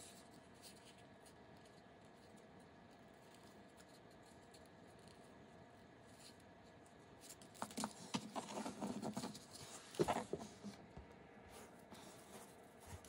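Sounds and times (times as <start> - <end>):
paper rustling and crackling: 7.2 - 10.8.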